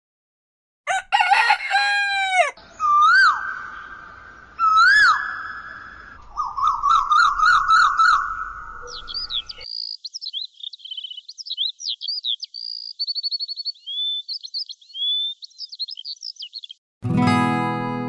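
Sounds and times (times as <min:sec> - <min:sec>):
rooster crowing: 0:00.9 - 0:02.6.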